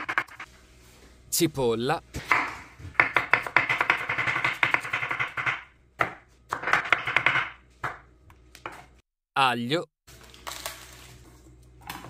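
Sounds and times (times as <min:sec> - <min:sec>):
knife chopping on wooden board: 0:02.2 - 0:08.0.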